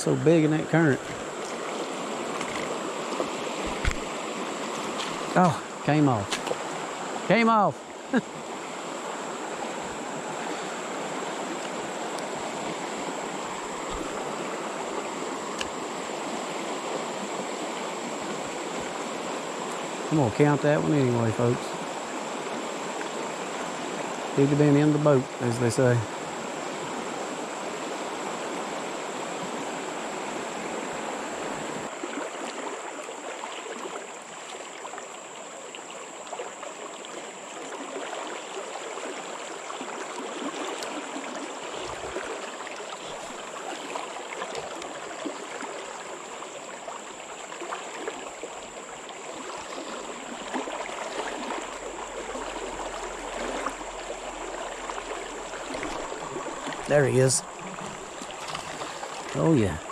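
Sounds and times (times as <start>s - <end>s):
river rushing over riffle: 37.8s - 59.9s.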